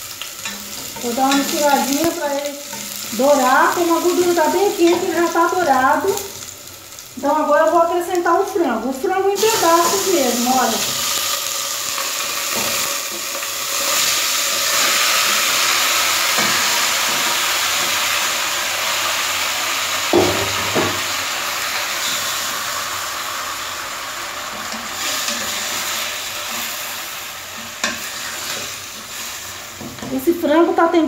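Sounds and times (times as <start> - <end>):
chicken sizzling in hot oil: 0.0 - 8.4, 9.4 - 31.0.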